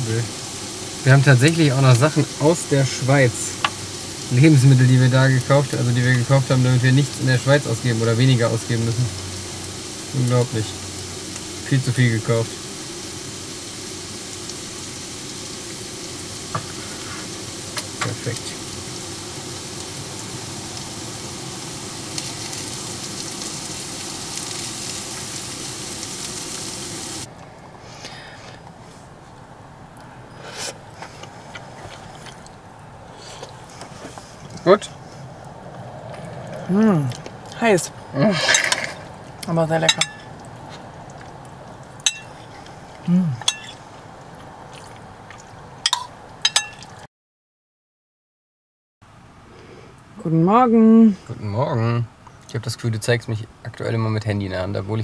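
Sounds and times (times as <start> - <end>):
food sizzling in a frying pan: 0.0 - 27.3, 38.5 - 42.6, 43.4 - 43.9
spoon clinking on ceramic bowl: 39.9 - 40.3, 42.1 - 42.4, 43.4 - 43.8, 45.9 - 46.9.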